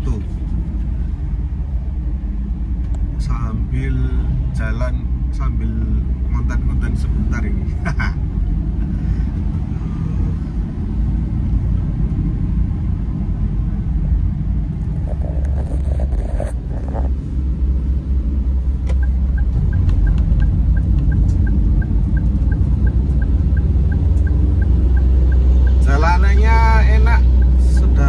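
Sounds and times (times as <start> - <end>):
car engine and road rumble: 0.0 - 28.0
regular light ticking: 18.9 - 26.4, 27.0 - 28.0.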